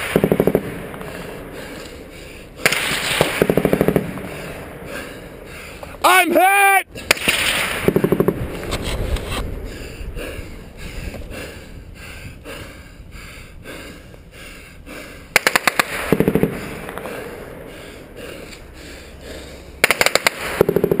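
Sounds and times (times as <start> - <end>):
automatic gunfire bursts: 15.4 - 16.6, 19.8 - 21.0.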